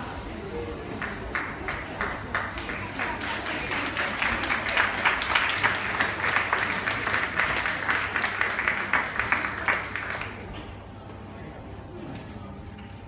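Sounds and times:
audience applauding: 0.9 - 10.5.

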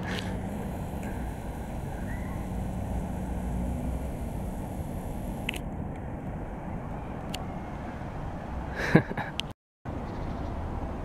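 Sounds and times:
low outdoor rumble: 0.0 - 7.5.

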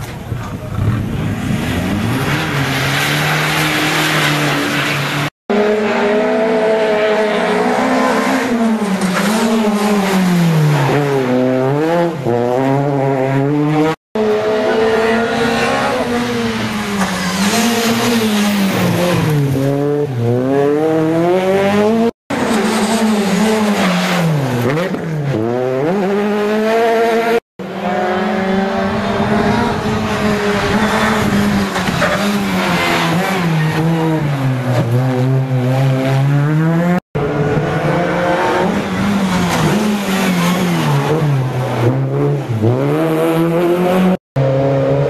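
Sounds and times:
rally car engines revving: 0.1 - 45.0.

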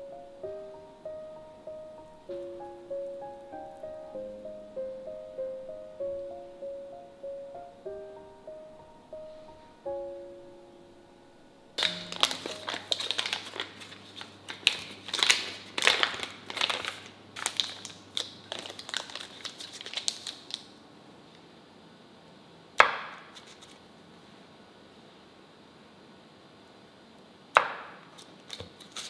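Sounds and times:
foil wrapper crinkling: 11.8 - 20.8, 28.5 - 29.0.

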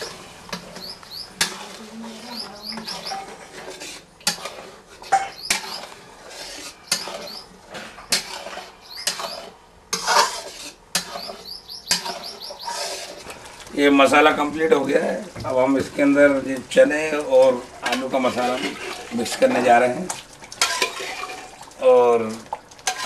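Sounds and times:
metal spatula scraping a pan: 0.0 - 13.4, 17.1 - 20.0, 20.6 - 21.5.

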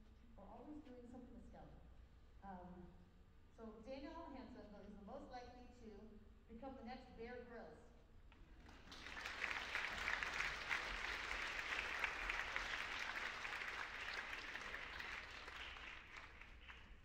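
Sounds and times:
audience applauding: 8.7 - 17.0.

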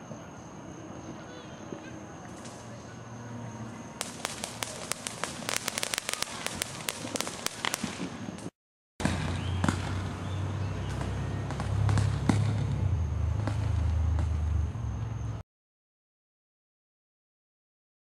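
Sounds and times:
fireworks crackling and popping: 4.0 - 14.6.

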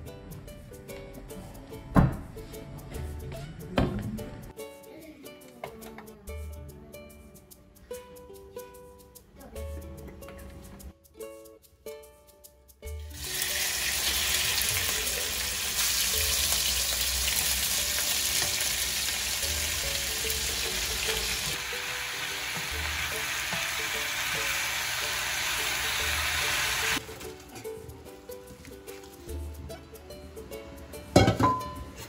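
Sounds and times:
meat sizzling in frying pan: 13.1 - 27.0.

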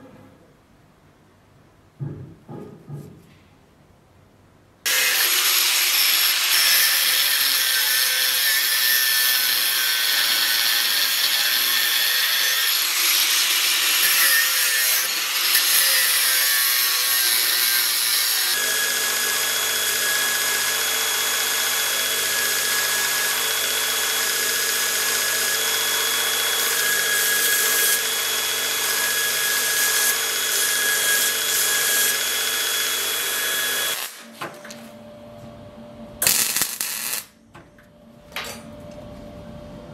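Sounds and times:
belt grinder running: 4.9 - 34.2
power tool grinding steel: 4.9 - 34.2.

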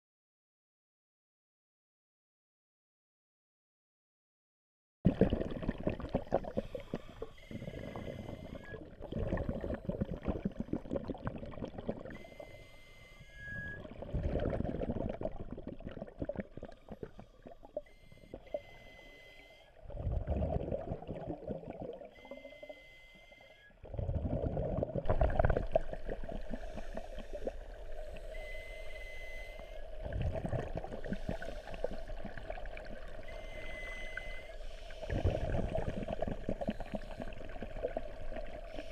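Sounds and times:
underwater exhalation bubbles gurgling: 5.1 - 12.4, 13.6 - 17.8, 19.8 - 22.4, 23.8 - 28.2, 29.8 - 34.3, 34.9 - 38.9.

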